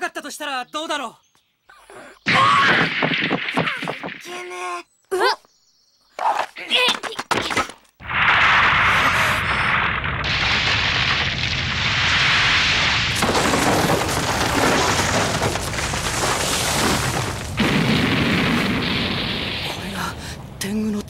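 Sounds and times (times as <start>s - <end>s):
deep rumble: 8.0s - 21.0s.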